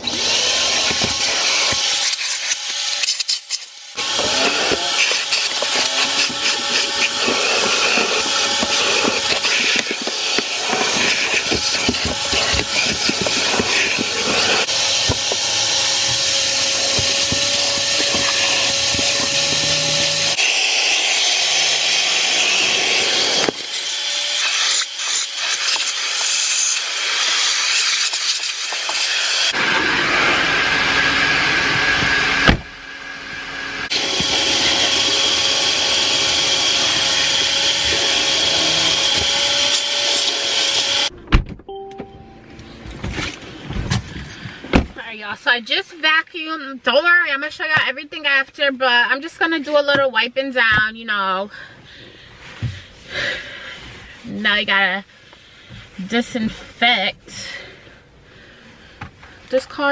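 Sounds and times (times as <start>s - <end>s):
vacuum cleaner running: 0.0s - 3.0s, 3.8s - 41.1s.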